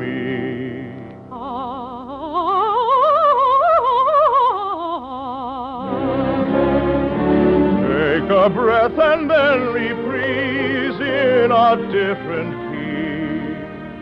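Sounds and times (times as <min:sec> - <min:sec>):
soprano singing a scale: 0:00.0 - 0:13.9
accompanying chords: 0:05.8 - 0:14.0.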